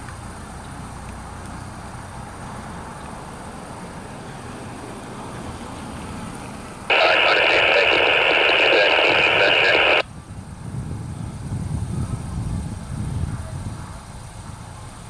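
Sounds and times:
vehicles rumbling over crossing: 0:00.0 - 0:15.0
radio static burst: 0:06.9 - 0:10.0.

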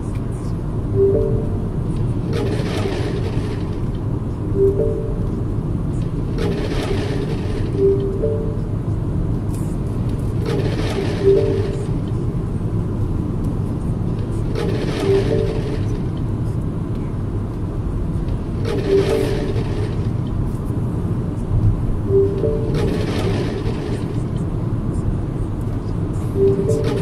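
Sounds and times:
car cabin road and engine noise: 0:00.0 - 0:27.0
short tonal sound: 0:01.0 - 0:01.9, 0:04.6 - 0:05.4, 0:22.1 - 0:23.1, 0:26.4 - 0:27.0.

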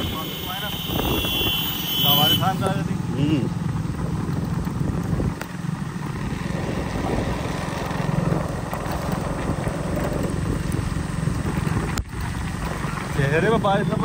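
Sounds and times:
motorcycle engine running: 0:00.0 - 0:14.0
wet road noise: 0:00.0 - 0:14.0.

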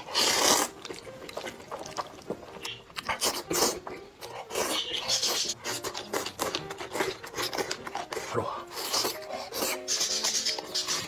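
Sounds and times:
person slurping noodles: 0:00.0 - 0:00.8, 0:04.4 - 0:11.0
person chewing: 0:00.0 - 0:11.0.

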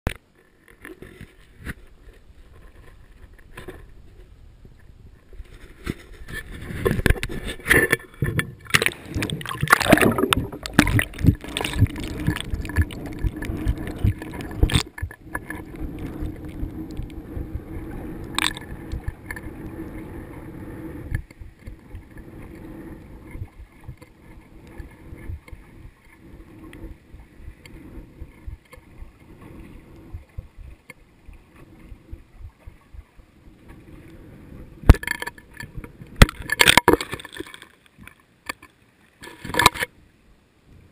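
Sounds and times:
muffled underwater rumble: 0:00.2 - 0:37.4
water sloshing against housing: 0:05.5 - 0:16.8.

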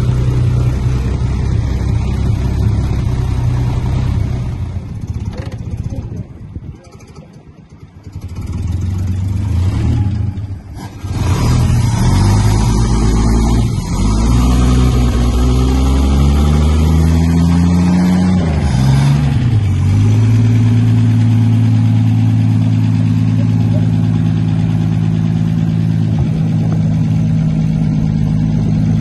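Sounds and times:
car engine revving and idling: 0:00.0 - 0:29.0.

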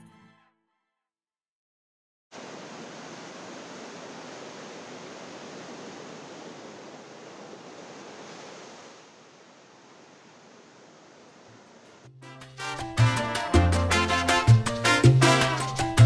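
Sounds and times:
surf breaking on beach: 0:02.3 - 0:12.0.

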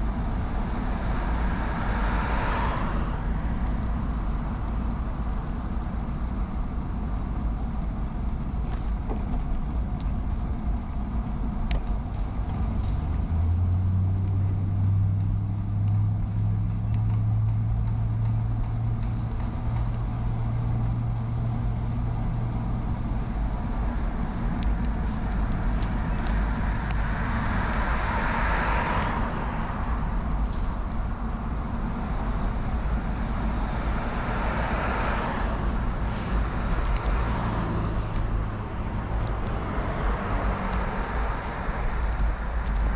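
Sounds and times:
car passing by: 0:00.0 - 0:03.7, 0:25.0 - 0:31.2, 0:32.2 - 0:42.9
low engine hum: 0:00.0 - 0:42.9
steady low rumble: 0:00.0 - 0:42.9.

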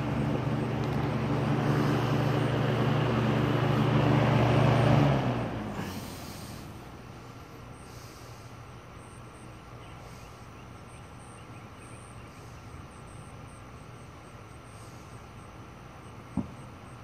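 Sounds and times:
box fan coasting down: 0:00.0 - 0:09.9.

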